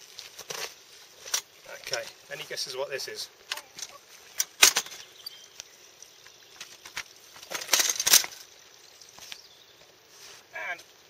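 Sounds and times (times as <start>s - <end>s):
trolley clattering on gravel: 0.0s - 5.3s, 6.5s - 8.6s.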